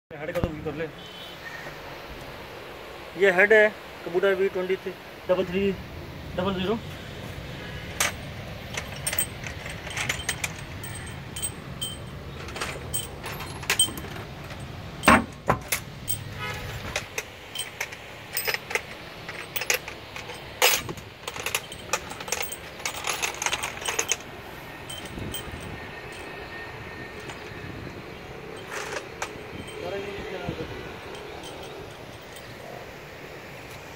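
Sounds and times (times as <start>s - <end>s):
metal clicks and clanks: 7.9s - 26.4s, 27.2s - 27.6s, 28.6s - 30.0s, 31.0s - 32.6s.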